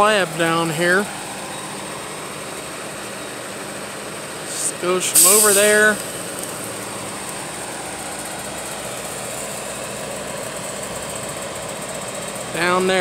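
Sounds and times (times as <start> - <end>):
engine idling: 0.0 - 13.0
high hiss: 4.4 - 6.6.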